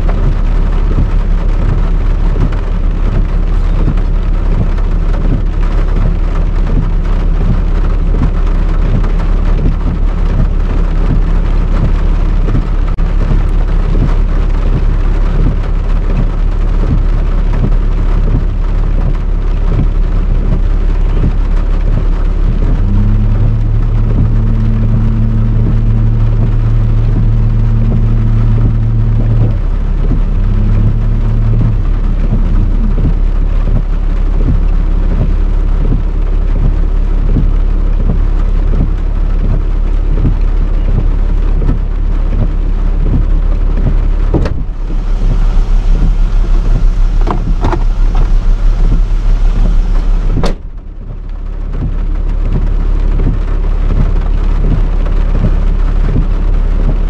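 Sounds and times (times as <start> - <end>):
heavy rain: 0.0 - 57.0
low rumble: 0.0 - 57.0
low steady hum: 0.0 - 57.0.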